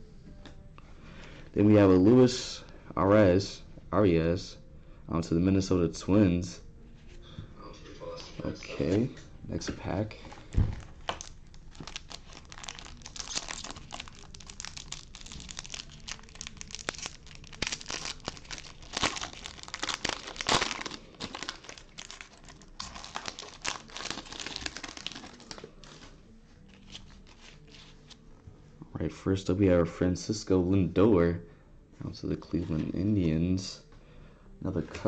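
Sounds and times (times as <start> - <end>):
foil wrapper crinkling and tearing: 10.8 - 26.0.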